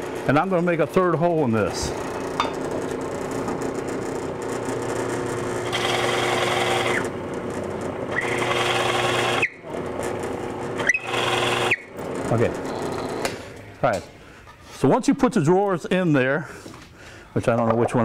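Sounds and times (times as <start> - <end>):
drill press motor hum: 1.8 - 13.7
drill bit boring into wood: 4.4 - 13.3.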